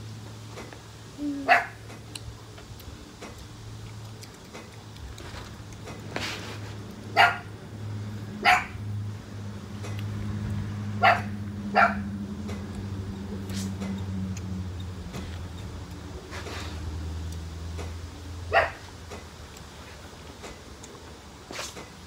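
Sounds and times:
steady low hum: 0:00.0 - 0:22.0
dog barking: 0:01.4 - 0:01.8, 0:07.2 - 0:07.5, 0:08.4 - 0:08.8, 0:11.0 - 0:12.1, 0:18.5 - 0:18.9.

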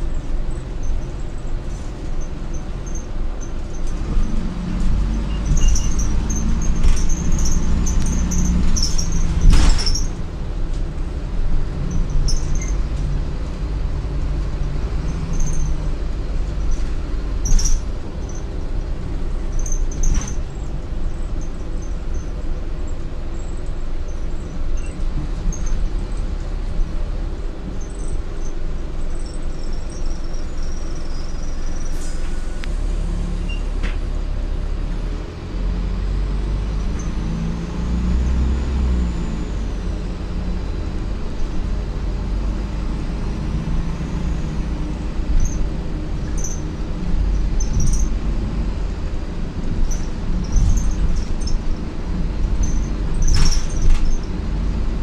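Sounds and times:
bus diesel engine: 0:00.0 - 0:55.0
road noise: 0:00.0 - 0:55.0
interior squeaks and rattles: 0:00.6 - 0:10.2, 0:11.8 - 0:13.5, 0:14.1 - 0:26.9, 0:27.7 - 0:32.6, 0:43.5 - 0:55.0.

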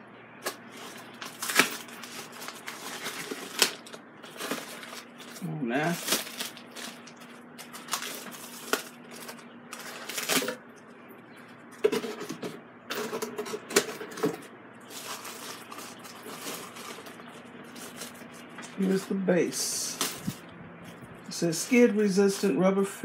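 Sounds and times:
plastic bag crinkling: 0:00.4 - 0:10.6, 0:14.8 - 0:19.1.

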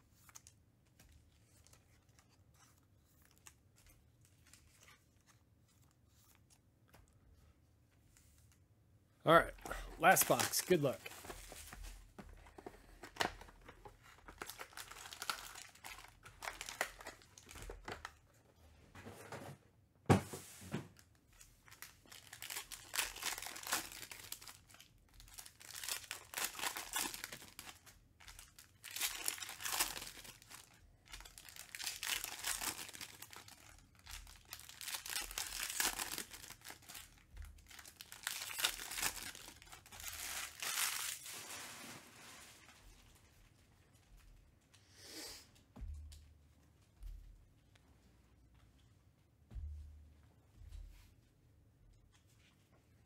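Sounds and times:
foil packs tearing and crinkling: 0:14.2 - 0:17.5, 0:21.8 - 0:42.1.

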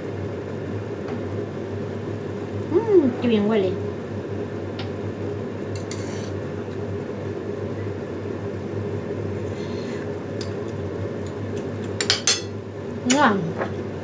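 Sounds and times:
pot boiling with hum and hiss: 0:00.0 - 0:14.0
metal spoon clinking on plate: 0:12.0 - 0:12.5.

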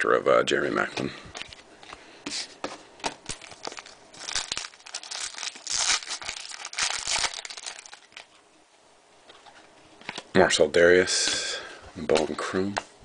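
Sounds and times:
foil wrapper tearing and crinkling: 0:03.2 - 0:08.3.

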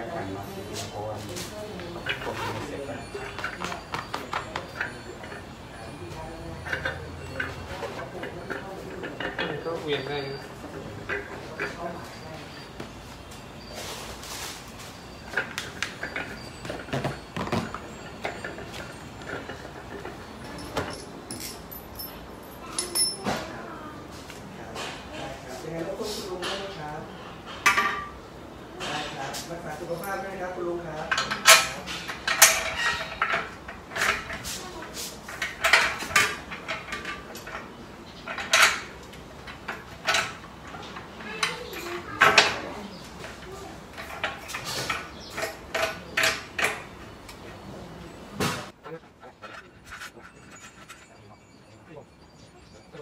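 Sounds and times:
metal parts clicking and knocking: 0:06.6 - 0:09.7, 0:15.2 - 0:23.4, 0:31.1 - 0:34.5, 0:35.2 - 0:42.6, 0:43.2 - 0:47.0.

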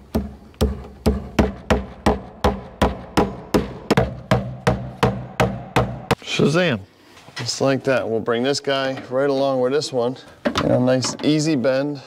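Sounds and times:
hammer striking wood: 0:00.0 - 0:06.2.

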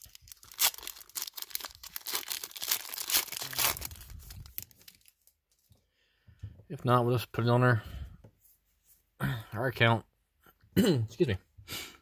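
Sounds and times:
foil wrapper tearing and crinkling: 0:00.0 - 0:05.3.

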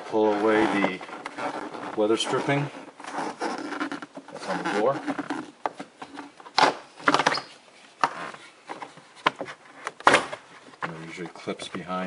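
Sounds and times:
rubber weather stripping pulled off: 0:00.0 - 0:08.8.

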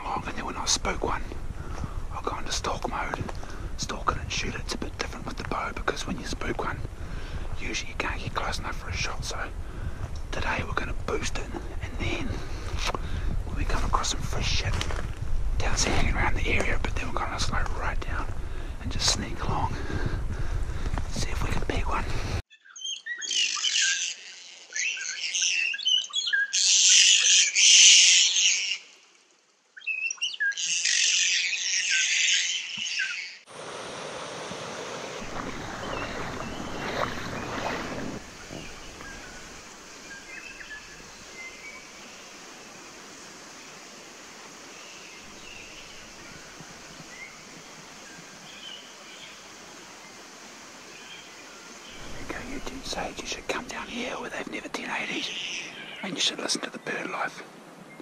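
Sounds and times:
running water hiss: 0:00.0 - 0:22.4, 0:26.5 - 0:58.0
faint bird chirps: 0:22.5 - 0:29.0, 0:29.7 - 0:33.4
foot splashing in shallow stream: 0:33.6 - 0:41.0.

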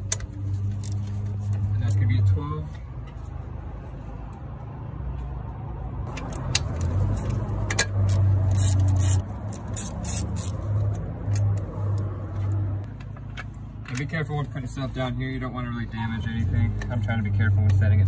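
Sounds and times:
socket ratchet clicking: 0:06.1 - 0:12.1.

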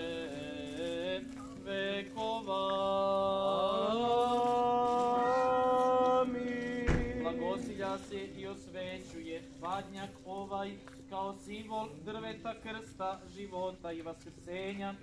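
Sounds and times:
choir chanting: 0:00.0 - 0:08.4
low vocal drone: 0:00.0 - 0:13.7.

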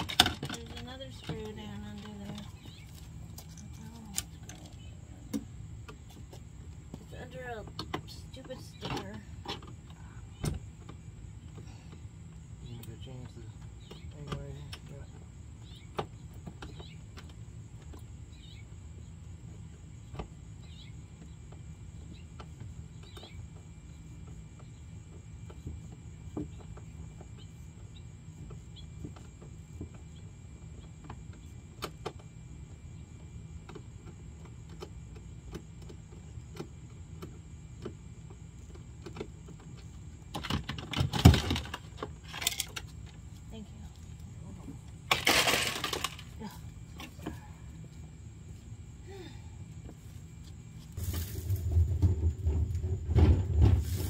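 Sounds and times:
plastic parts clattering: 0:40.4 - 0:42.9, 0:45.1 - 0:46.4.

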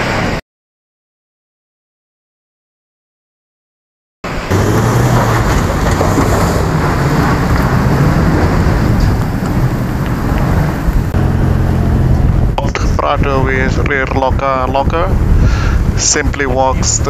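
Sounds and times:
tyres spinning spraying stones: 0:04.5 - 0:11.9
truck engine under heavy load: 0:04.5 - 0:17.0.

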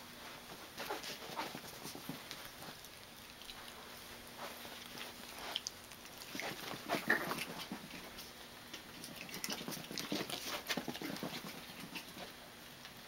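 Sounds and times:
puppy paws pattering on carpet: 0:00.0 - 0:13.0.

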